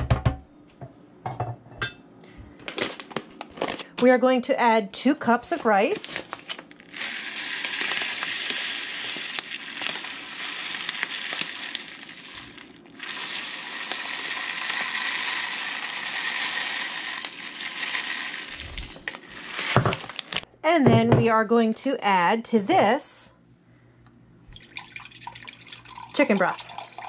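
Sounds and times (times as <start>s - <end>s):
rice pouring: 6.2s - 20.5s, 24.6s - 27.0s.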